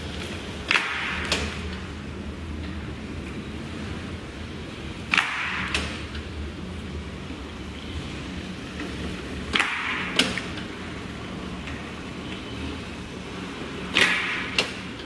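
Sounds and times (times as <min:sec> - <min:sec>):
sharp snap: 0:00.6 - 0:01.5, 0:05.1 - 0:06.0, 0:09.5 - 0:10.5, 0:13.9 - 0:14.8.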